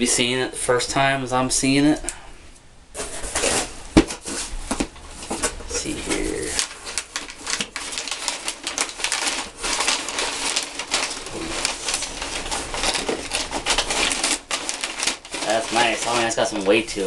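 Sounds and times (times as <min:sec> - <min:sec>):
packing paper rustling and crinkling: 0:03.0 - 0:17.0.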